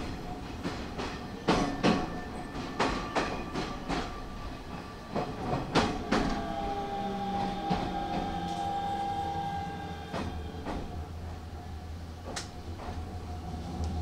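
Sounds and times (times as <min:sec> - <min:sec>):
train clacking over rail joints: 0:00.0 - 0:11.6, 0:12.2 - 0:14.0
train motor whine: 0:05.8 - 0:11.1.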